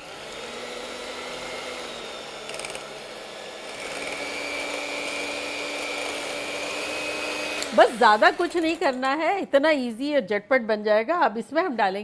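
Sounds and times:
electric hand mixer humming: 0:00.0 - 0:09.4
mixer beaters rattling: 0:07.4 - 0:09.2.

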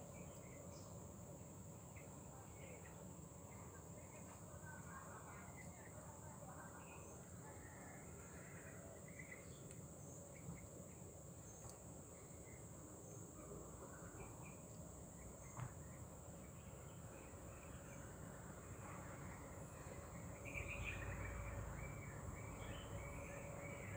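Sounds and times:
faint insect chirps: 0:00.0 - 0:23.9
small ticks: 0:11.5 - 0:11.9.

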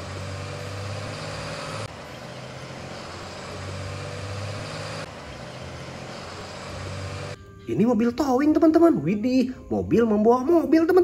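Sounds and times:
truck engine running low: 0:00.0 - 0:07.4.

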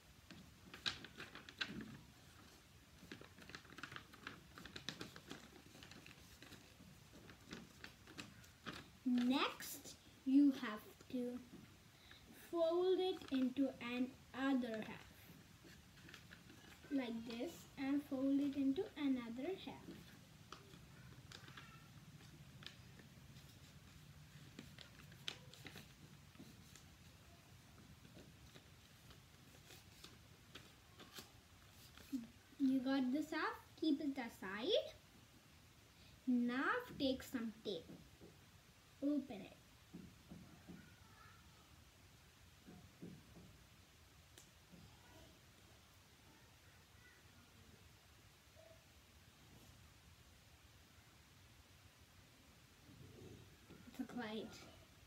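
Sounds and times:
paper crinkling and folding: 0:00.3 - 0:09.9, 0:11.4 - 0:32.7.

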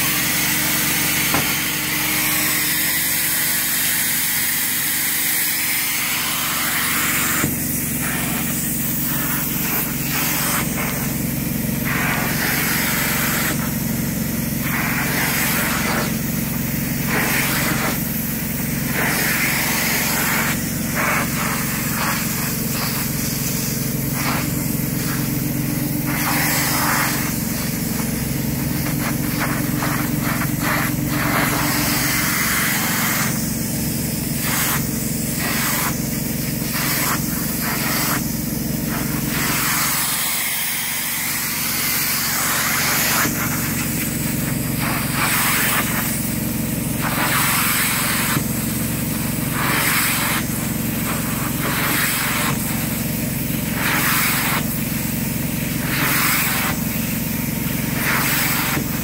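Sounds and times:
spray and suction hiss: 0:00.0 - 0:59.0
extractor machine hum: 0:21.6 - 0:35.4.

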